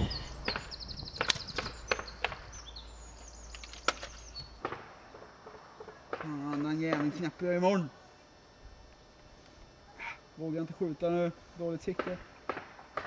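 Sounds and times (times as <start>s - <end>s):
small birds chirping: 0.0s - 4.7s.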